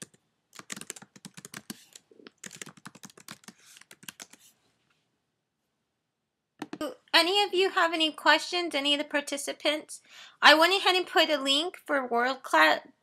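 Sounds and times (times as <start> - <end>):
typing on computer keyboard: 0.0 - 4.4.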